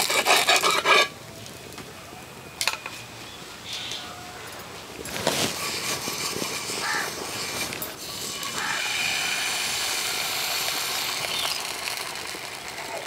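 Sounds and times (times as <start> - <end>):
batter sizzling on hot pan: 8.0 - 13.0
bird calls: 11.2 - 11.7.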